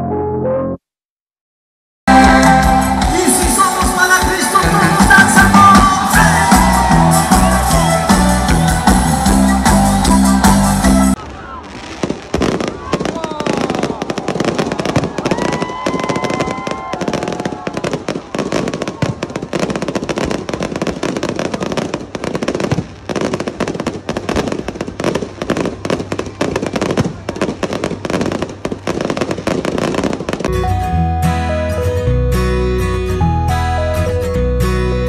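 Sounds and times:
music: 0:00.0 - 0:00.9, 0:02.1 - 0:11.2, 0:30.5 - 0:35.0
fireworks crackling and popping: 0:03.2 - 0:30.5
acoustic guitar music: 0:30.5 - 0:35.0.

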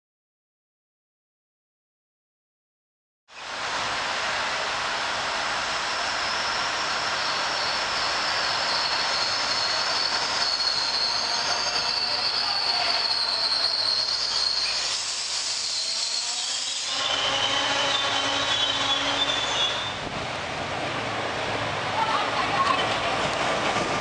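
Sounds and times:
train rolling noise: 0:03.4 - 0:24.0
train brakes squealing: 0:05.8 - 0:20.1.

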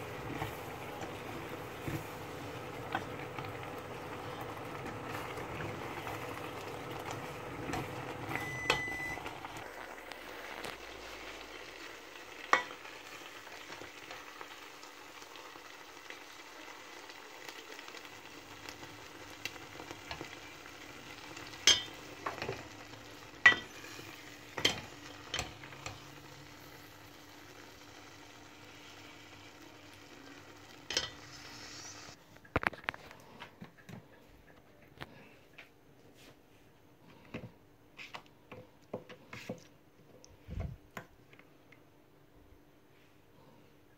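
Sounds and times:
gas stove hiss: 0:00.0 - 0:32.2.

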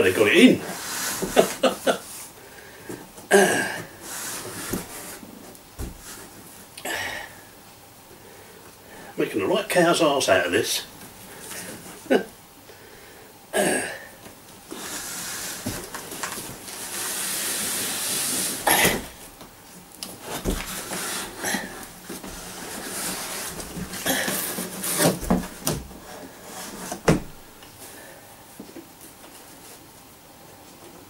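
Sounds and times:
rustling and scraping in cardboard box: 0:03.9 - 0:06.5, 0:14.7 - 0:19.4, 0:20.1 - 0:27.4.

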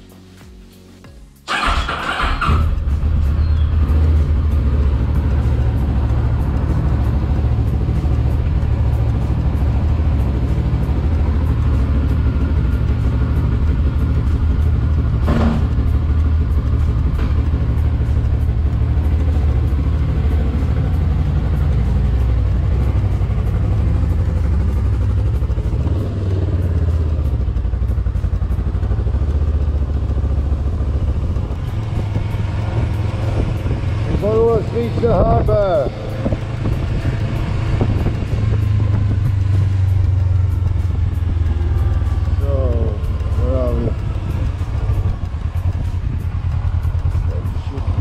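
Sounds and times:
motorcycle engine rumbling: 0:01.4 - 0:48.0
sharp knock: 0:15.2 - 0:15.8.

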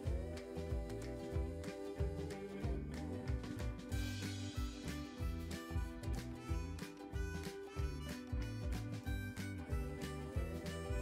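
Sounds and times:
music with beat and bass: 0:00.0 - 0:11.0.

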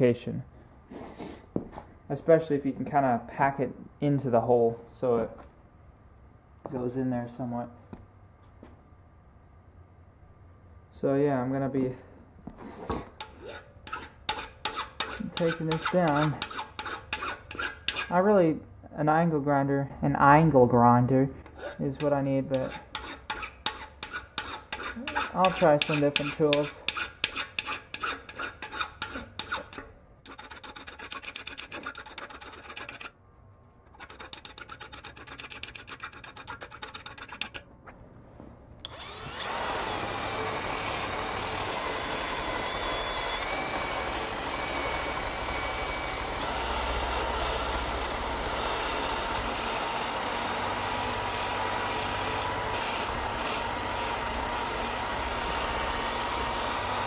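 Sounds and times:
drill with wire wheel scrubbing: 0:12.8 - 0:18.2, 0:22.5 - 0:33.1, 0:38.8 - 0:57.0
hand file rasping on steel: 0:13.2 - 0:18.2, 0:21.5 - 0:33.1, 0:33.9 - 0:37.6.

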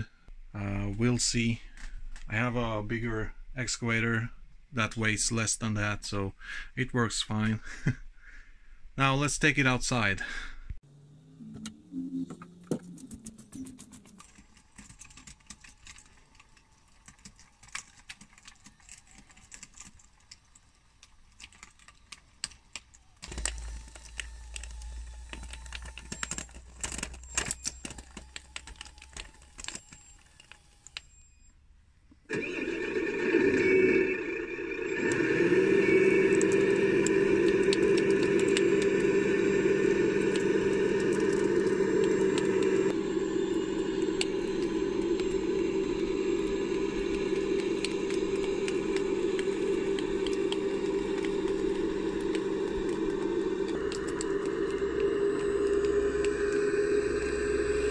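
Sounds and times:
diesel engine starting and idling: 0:32.3 - 0:57.9.

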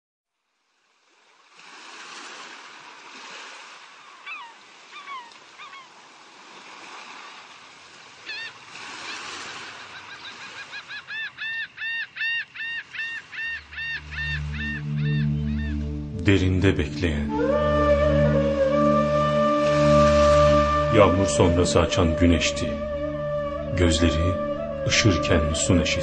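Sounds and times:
sea surf washing: 0:01.3 - 0:11.4, 0:12.8 - 0:26.0
gulls calling: 0:04.0 - 0:06.0, 0:08.2 - 0:26.0
low music notes: 0:13.9 - 0:26.0.

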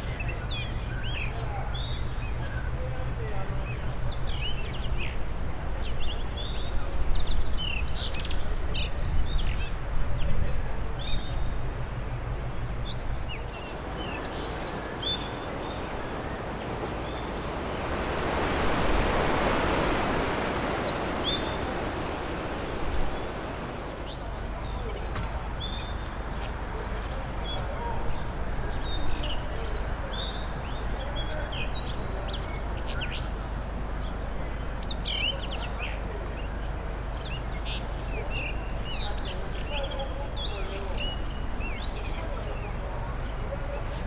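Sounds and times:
birds singing: 0:00.0 - 0:44.0
wind rumbling on microphone: 0:03.5 - 0:29.8.

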